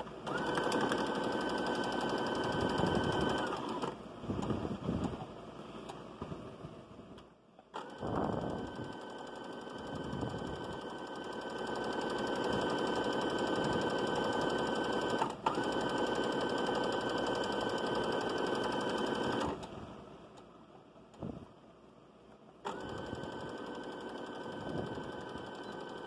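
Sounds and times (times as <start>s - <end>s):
sewing machine stitching: 0.0s - 4.0s, 7.7s - 19.8s, 22.6s - 26.0s.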